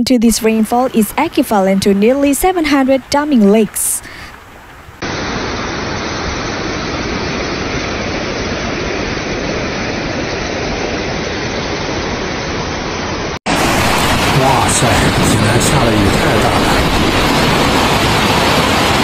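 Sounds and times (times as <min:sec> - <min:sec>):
floodwater rushing down street: 0:00.3 - 0:06.7, 0:13.5 - 0:19.0.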